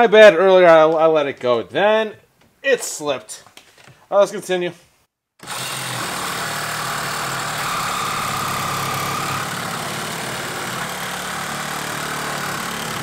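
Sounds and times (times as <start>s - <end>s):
reciprocating saw cutting metal pipe: 5.4s - 13.0s.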